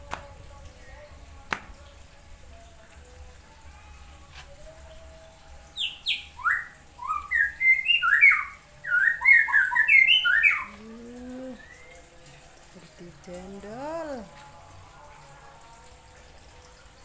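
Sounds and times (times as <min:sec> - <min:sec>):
songbird singing: 0:05.7 - 0:12.5.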